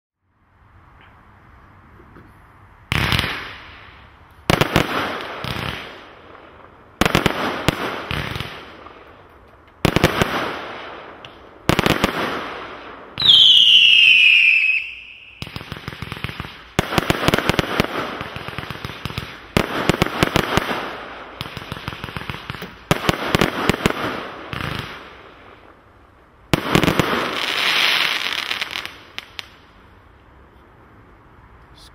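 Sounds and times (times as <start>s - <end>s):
firework crackling: 2.8s - 30.2s
firework bangs: 2.9s - 9.1s, 9.8s - 25.4s, 26.5s - 29.6s
falling firework whistle: 13.2s - 15.7s.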